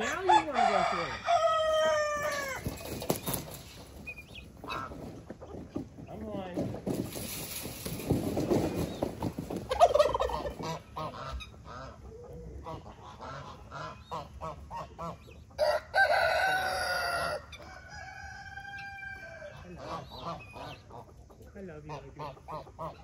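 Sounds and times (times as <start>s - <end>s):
rooster crowing: 0.0s - 2.8s, 15.6s - 19.6s
chickens clucking: 0.0s - 23.0s.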